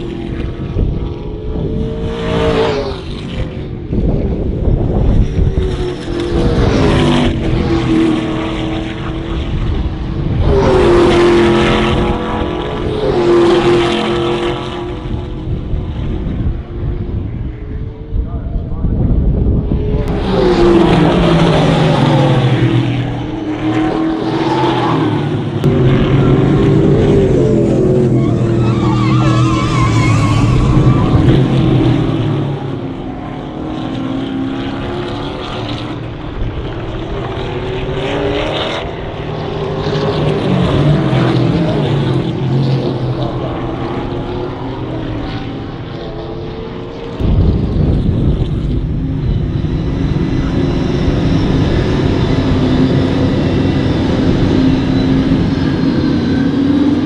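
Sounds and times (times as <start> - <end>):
race car engines passing: 0.0 - 57.0.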